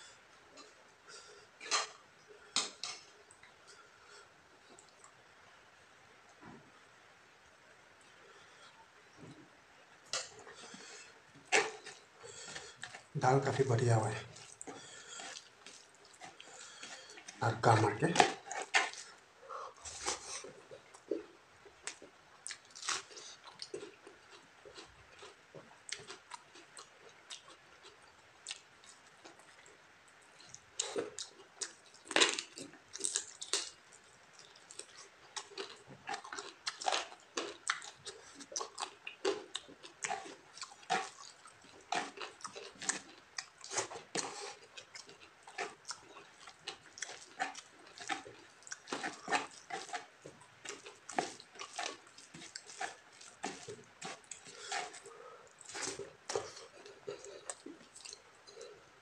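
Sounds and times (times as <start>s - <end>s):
chewing and lip smacks: 1.6s - 3.8s, 19.8s - 58.8s.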